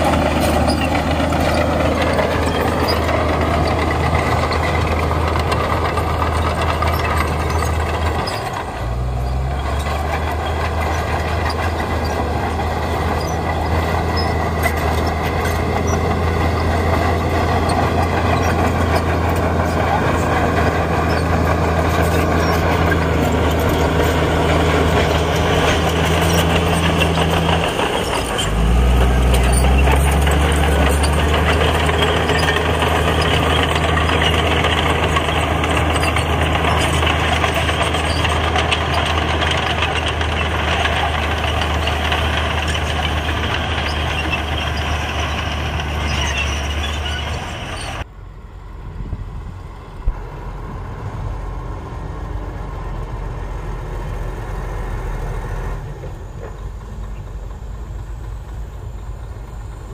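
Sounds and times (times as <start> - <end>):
heavy diesel engine running: 0.0 - 59.9.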